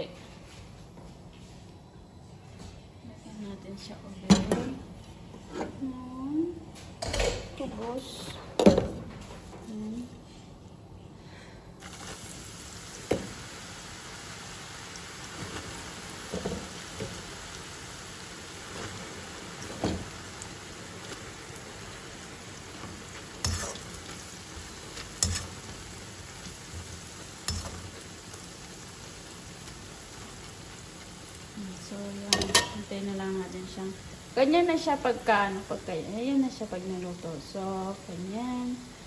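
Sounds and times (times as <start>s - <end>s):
bread frying in hot oil: 11.8s - 39.0s.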